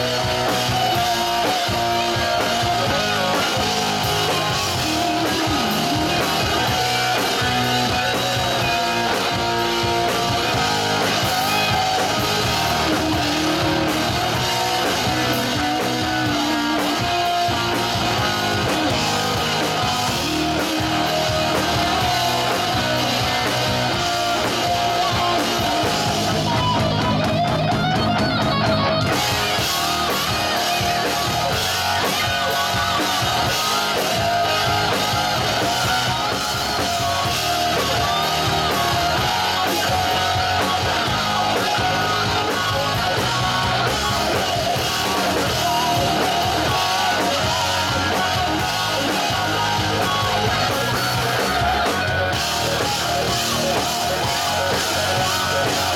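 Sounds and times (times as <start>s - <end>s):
bass guitar: 0.0s - 55.9s
drum kit: 0.0s - 55.9s
electric guitars: 0.0s - 55.9s.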